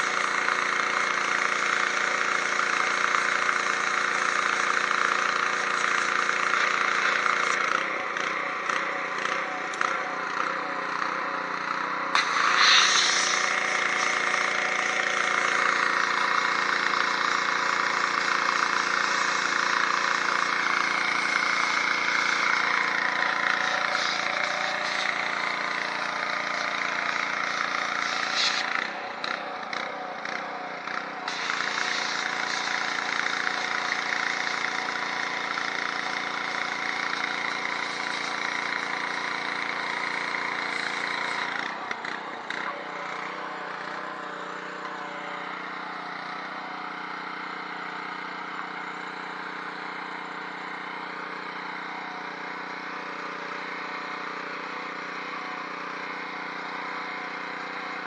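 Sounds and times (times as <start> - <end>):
pressure washer engine humming: 0.0 - 58.0
high-pressure spray hissing: 12.1 - 28.7, 31.3 - 35.1.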